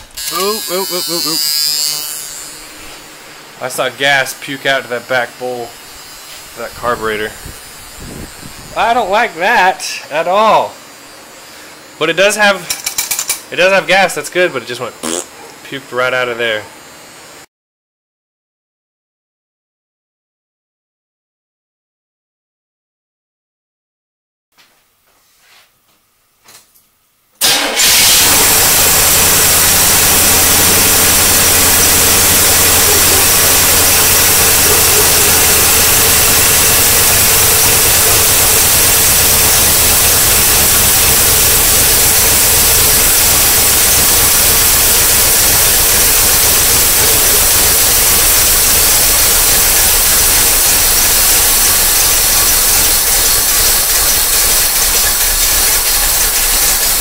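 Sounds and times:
car engine starting and running: 27.4 - 57.0.

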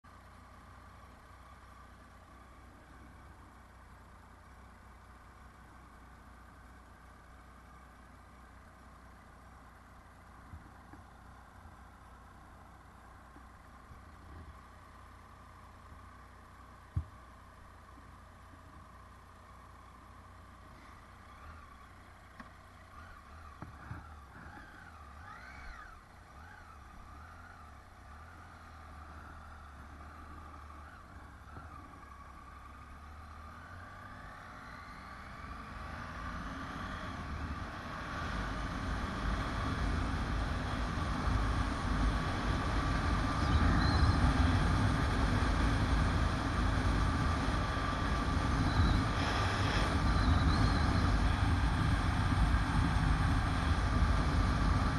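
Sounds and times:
motorcycle engine: 0.0 - 54.9
wind and road noise: 0.0 - 54.9
rising whine: 33.1 - 54.9.

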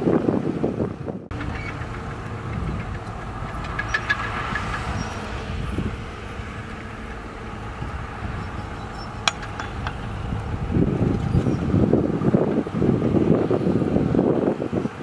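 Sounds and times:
heavy diesel machinery running: 0.2 - 15.0
metallic squeaks: 1.3 - 12.0.

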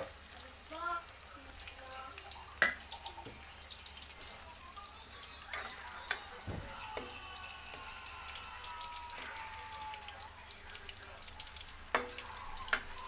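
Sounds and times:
food sizzling in oil: 0.0 - 13.0.

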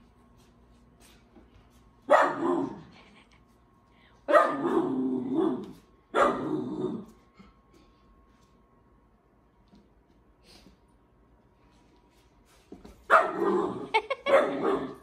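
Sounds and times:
puppy barking: 2.1 - 2.8, 4.3 - 6.5, 13.1 - 15.0.

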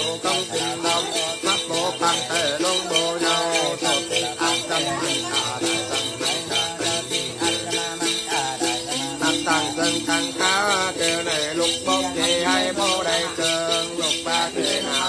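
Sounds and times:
person singing wavering melody: 0.0 - 15.0
small metal bells shaken: 0.0 - 15.0.

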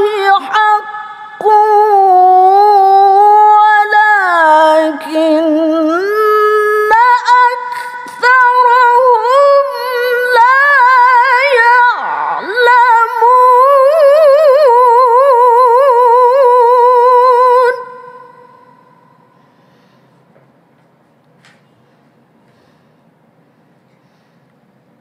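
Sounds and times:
woman reciting melismatic chant: 0.0 - 19.4.

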